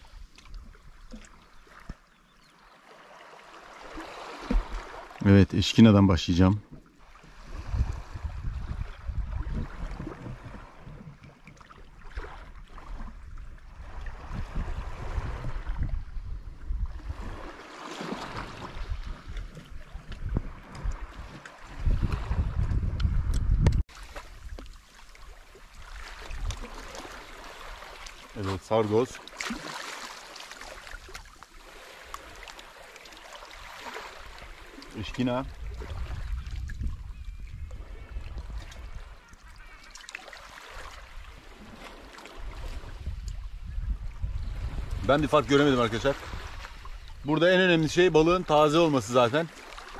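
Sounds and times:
waves washing on shore: 2.7s - 11.0s, 11.8s - 16.1s, 16.8s - 22.7s, 23.9s - 36.7s, 37.8s - 43.6s, 44.5s - 49.9s
wind rumbling on microphone: 7.3s - 11.3s, 12.0s - 24.8s, 25.7s - 27.9s, 35.4s - 39.8s, 40.8s - 48.6s.

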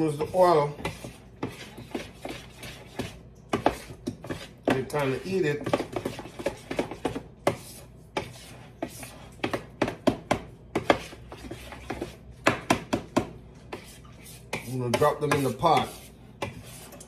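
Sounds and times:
metal spoon scraping mixing bowl: 0.0s - 9.9s, 10.8s - 12.3s, 13.6s - 17.0s.

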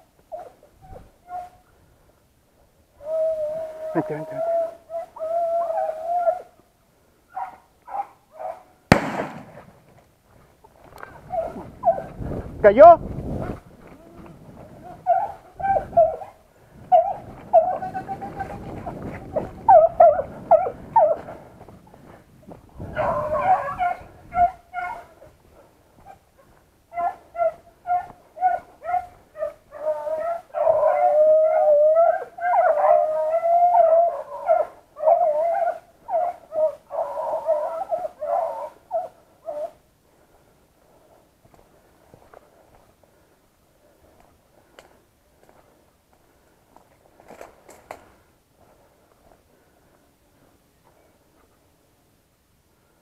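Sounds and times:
grass and brush rustling: 0.0s - 53.0s
dogs baying and howling: 0.2s - 1.8s, 2.9s - 6.7s, 7.3s - 9.1s, 10.9s - 12.4s, 13.3s - 41.2s.

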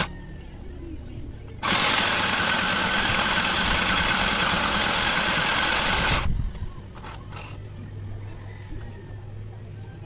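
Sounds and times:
sewing machine stitching: 1.6s - 6.3s.

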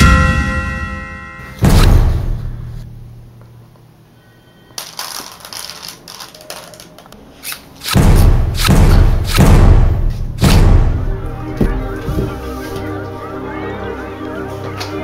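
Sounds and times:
loud deep pounding: 0.0s - 3.2s, 8.0s - 12.4s.

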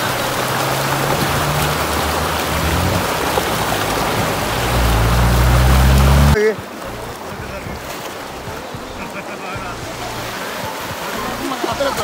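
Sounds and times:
rapids rushing over rocks: 0.0s - 12.0s.

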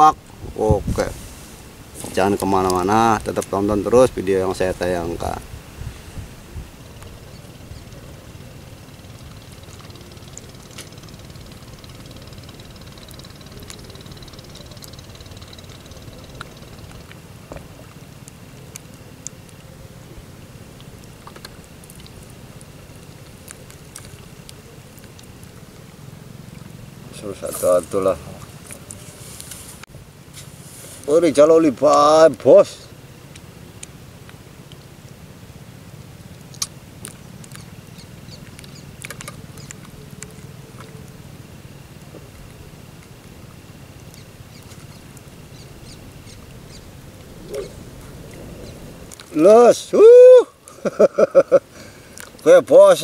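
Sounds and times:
steady low hum: 0.0s - 53.0s
small engine running at low revs: 6.5s - 28.9s
faint clicks: 9.1s - 19.7s.

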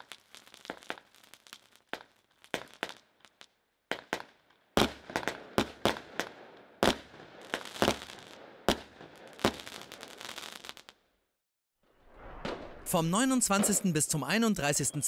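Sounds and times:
firework crackling: 0.0s - 11.0s
firework bangs: 3.9s - 10.9s, 12.0s - 14.2s.

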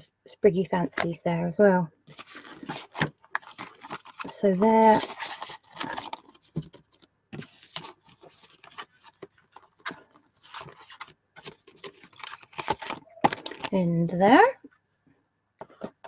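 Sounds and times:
plastic packaging scraping and crinkling: 2.1s - 13.8s.

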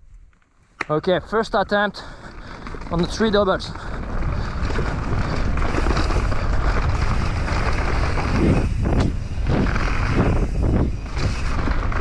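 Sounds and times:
tyres rolling on dirt trail: 0.3s - 12.0s
wind buffeting microphone: 1.1s - 12.0s
bike knocks and rattles: 2.4s - 12.0s.

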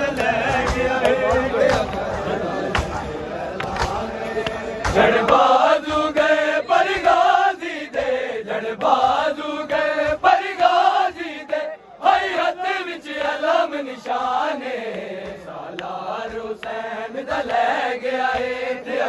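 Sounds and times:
chest-beating slaps: 0.0s - 7.3s
men chanting a lament in unison: 0.0s - 19.0s.

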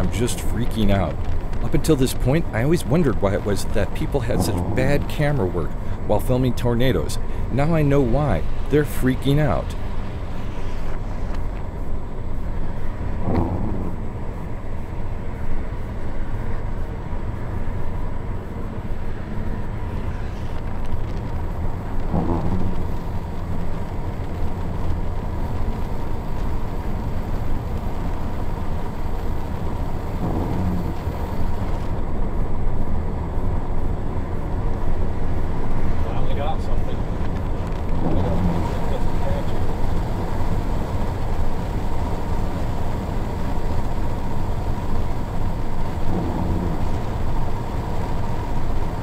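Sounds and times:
road and engine noise in car: 0.0s - 49.0s.

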